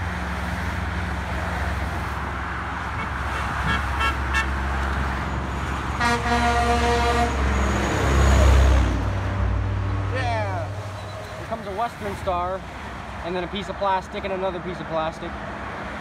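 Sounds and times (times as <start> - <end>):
truck rumbling past: 0.0 - 14.6
highway traffic noise: 0.0 - 16.0
truck horn blast: 2.9 - 4.6, 6.0 - 8.0.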